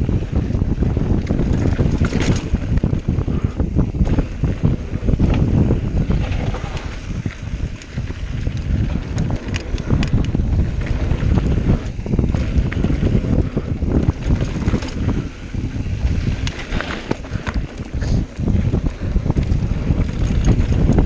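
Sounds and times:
bike rattling over bumps: 0.0 - 21.0
bike tyres on dirt: 0.0 - 21.0
wind buffeting microphone: 0.0 - 21.0.

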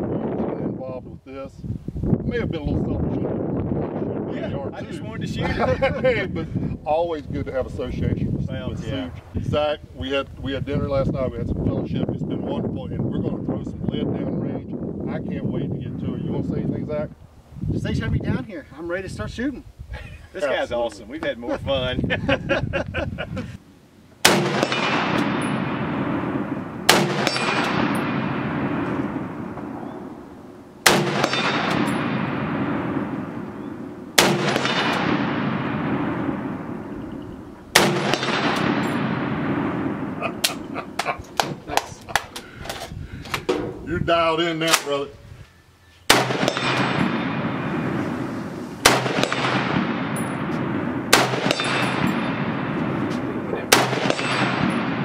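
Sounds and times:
rifle shots with long echo: 24.2 - 41.6, 46.1 - 55.0.

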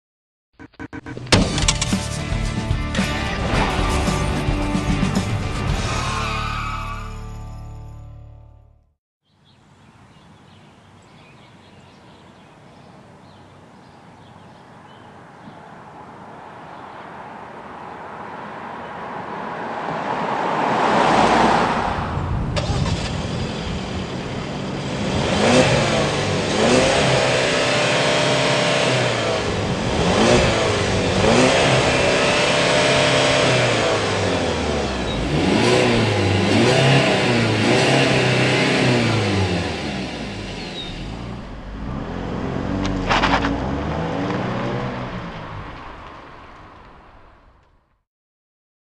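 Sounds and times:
car engine revving: 0.6 - 2.3, 18.0 - 46.7.

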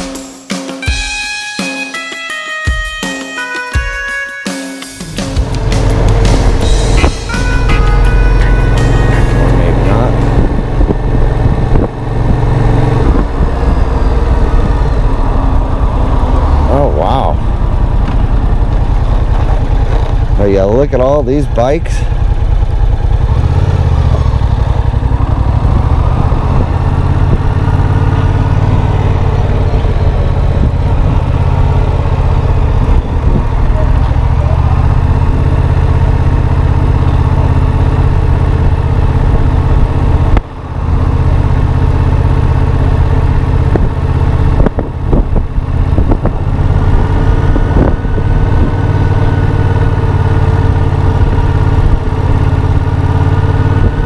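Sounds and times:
motorcycle engine running at low revs: 5.0 - 54.0.

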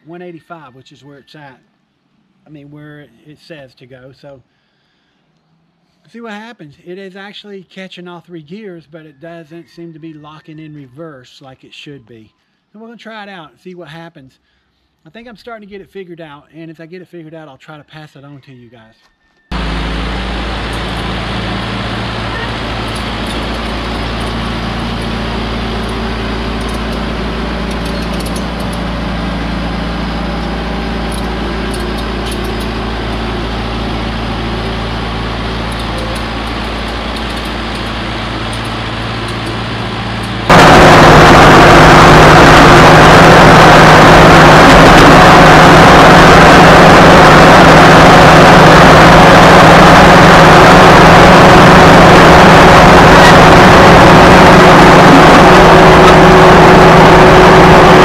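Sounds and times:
diesel engine running: 19.5 - 58.0.

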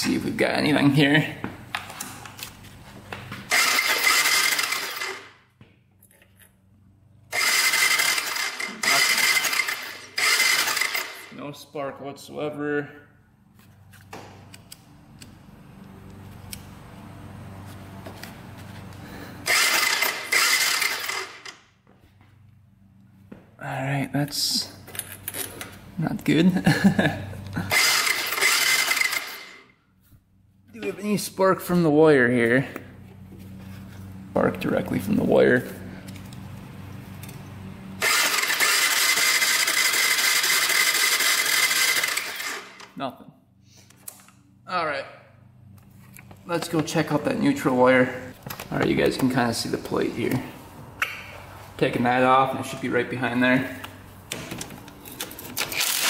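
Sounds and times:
electric starter cranking engine: 3.4 - 5.4, 7.3 - 11.4, 19.1 - 21.6, 27.6 - 29.7, 37.2 - 43.0, 55.2 - 56.0.

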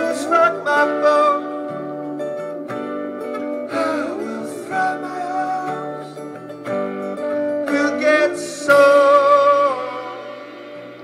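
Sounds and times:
person singing: 0.0 - 2.0, 3.6 - 6.5, 7.5 - 11.0
live band music: 0.0 - 11.0.

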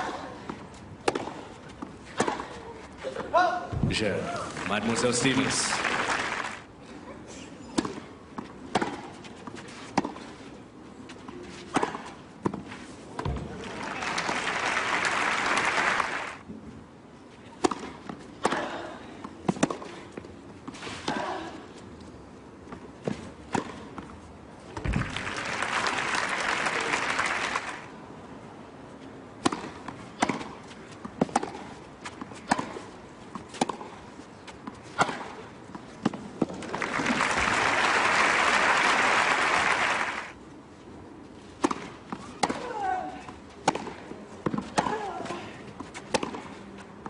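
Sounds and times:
racket striking tennis ball: 1.0 - 1.4, 8.7 - 9.1, 17.6 - 18.7, 19.5 - 19.9, 29.4 - 34.0, 34.9 - 35.4, 41.6 - 42.7, 43.6 - 45.1, 45.9 - 46.6
crowd applause: 4.4 - 6.7, 13.6 - 16.4, 24.9 - 27.9, 36.7 - 40.3.

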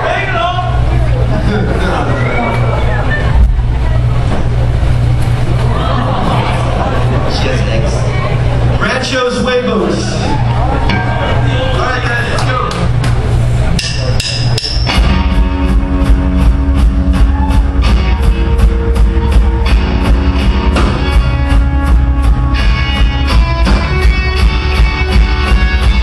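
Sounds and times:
live rock band playing: 0.8 - 26.0.

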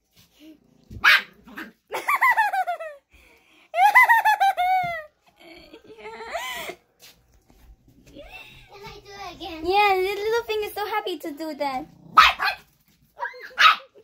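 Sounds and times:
small dog barking and yipping: 0.9 - 1.8, 12.1 - 14.0.

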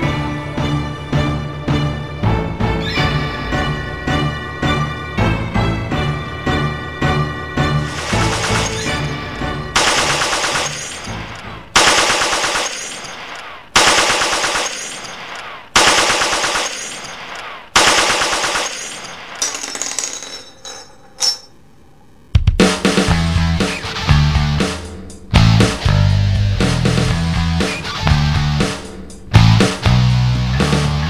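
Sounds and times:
machine gun bursts: 7.9 - 9.0, 9.8 - 19.8.

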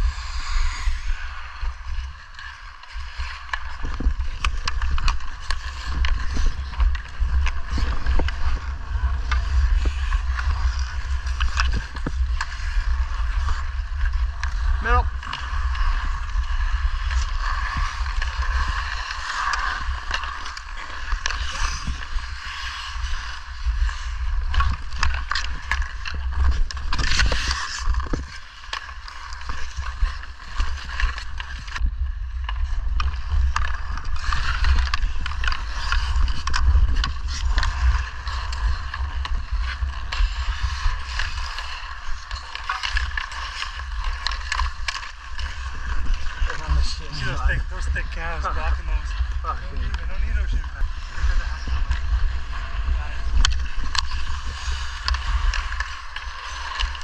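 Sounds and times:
hockey sticks and puck clacking: 0.0 - 57.0
skates scraping on ice: 0.0 - 57.0
wind buffeting microphone: 45.8 - 55.4.

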